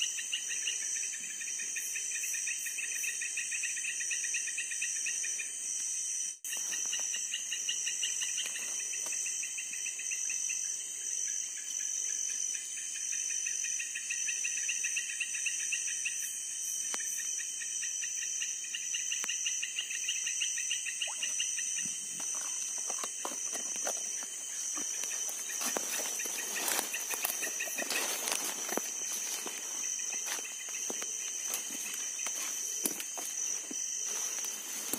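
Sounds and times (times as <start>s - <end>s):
crickets and insects chirping: 0.0s - 34.9s
footsteps through vegetation: 22.2s - 34.9s
rustling leaves: 23.1s - 34.9s.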